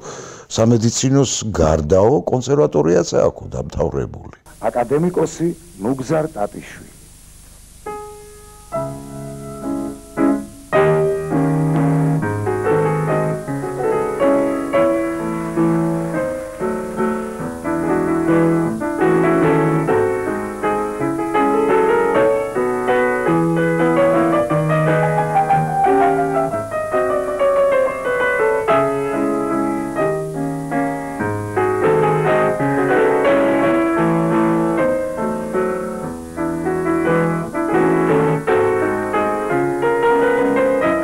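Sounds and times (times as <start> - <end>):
grand piano playing: 7.8 - 41.0.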